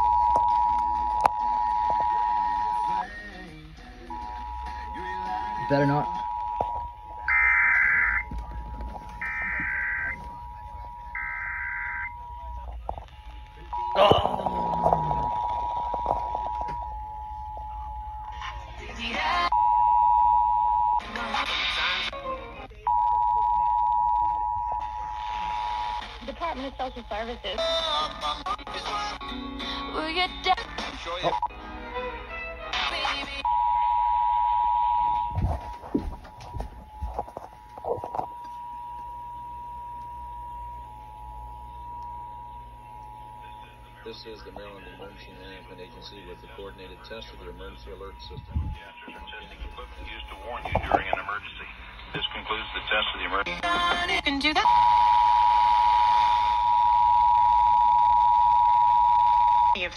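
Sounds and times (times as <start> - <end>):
two-tone emergency alert signal: 4.1 - 8.3, 9.2 - 12.7, 54.6 - 59.8
two-tone alert signal: 4.2 - 8.3, 9.2 - 12.6, 13.7 - 18.2
radio broadcast audio: 4.2 - 16.8, 24.1 - 27.6, 30.7 - 31.5, 35.2 - 38.4, 42.6 - 54.6.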